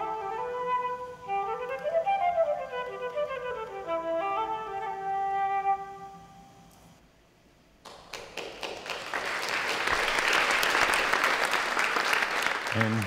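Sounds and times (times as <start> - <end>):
solo flute playing: 0.0 - 6.7
audience applause: 7.9 - 13.0.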